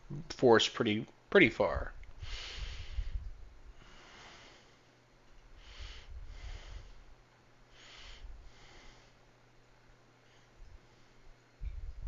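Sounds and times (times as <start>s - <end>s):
breathing through the nose: 2.2s - 4.9s, 5.5s - 7.1s, 7.7s - 9.2s.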